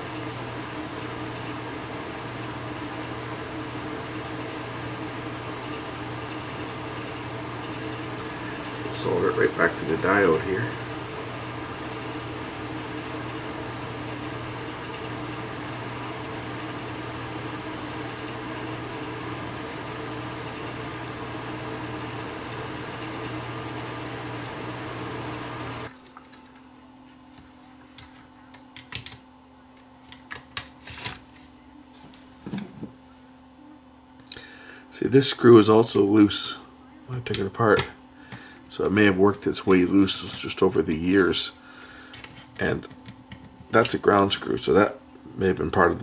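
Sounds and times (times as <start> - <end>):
mechanical fan hum: 0.0 - 46.0.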